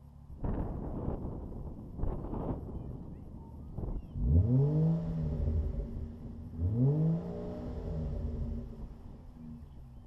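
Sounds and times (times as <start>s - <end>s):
car engine revving: 3.6s - 9.8s.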